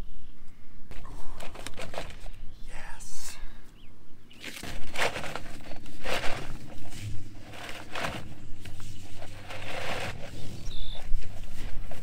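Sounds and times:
plastic pipe scraping and rattling: 0.9s - 2.4s, 4.4s - 12.0s.

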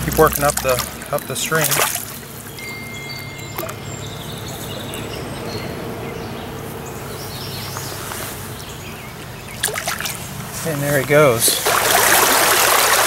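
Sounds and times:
stream water flowing: 0.0s - 6.4s, 7.1s - 13.0s
bird chirps: 2.2s - 10.4s.

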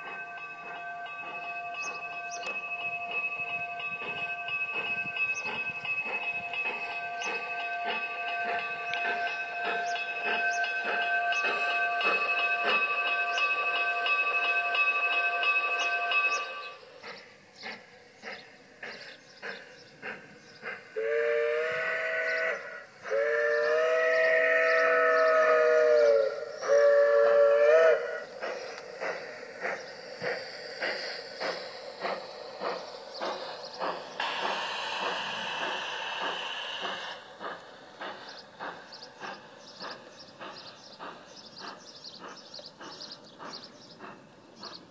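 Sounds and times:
model train high whine: 0.0s - 44.9s
steam locomotive chuffing: 0.0s - 44.9s
wheels clicking on track: 0.0s - 44.9s
two-note steam whistle: 21.0s - 28.3s.

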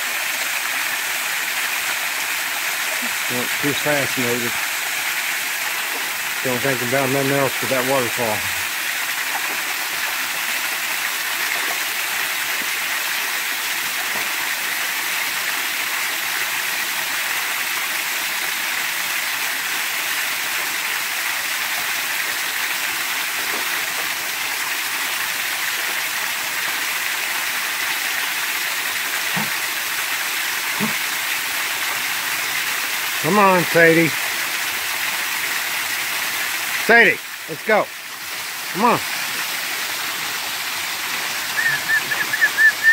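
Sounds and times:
waterfall rushing: 0.0s - 10.8s, 32.6s - 34.2s, 36.6s - 42.9s.

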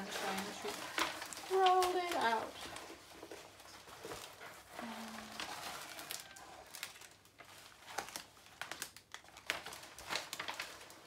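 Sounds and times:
paper rustling and crinkling: 0.0s - 11.0s
sharp paper crackles: 0.0s - 11.0s.

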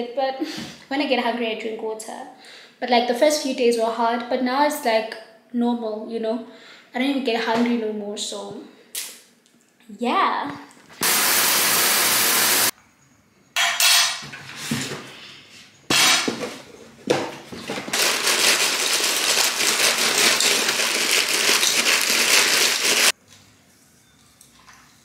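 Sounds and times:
shower spray hissing: 11.0s - 12.7s
cereal pouring into bowl: 17.9s - 23.2s.

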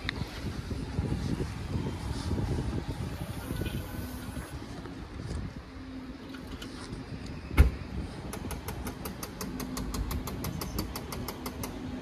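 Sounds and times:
car door thud: 7.5s - 7.8s.

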